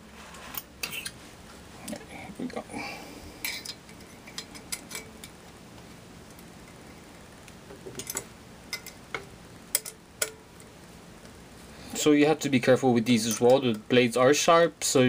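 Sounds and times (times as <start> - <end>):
light metallic clicks and clinks: 3.4 - 5.4, 8.0 - 10.7.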